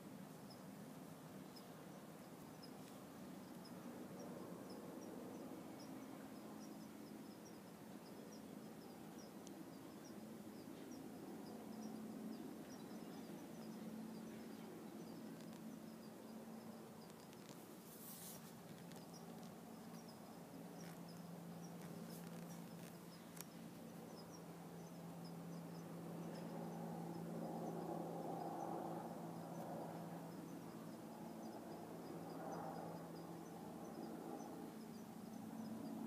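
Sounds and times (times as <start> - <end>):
faint low hum: 0.0 - 36.0.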